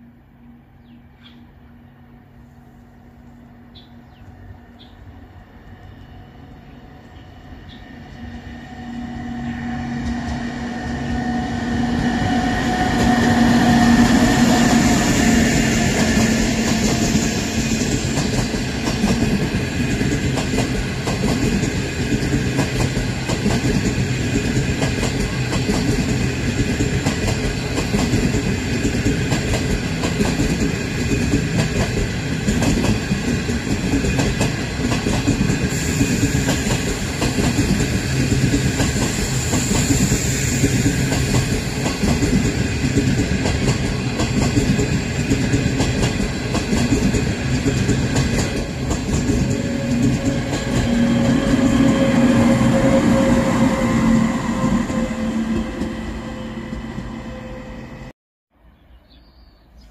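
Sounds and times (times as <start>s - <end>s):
train coaches rumbling: 0.0s - 58.1s
train power car hum: 0.0s - 58.1s
wheels clickety-clack over rail joints: 17.8s - 52.1s.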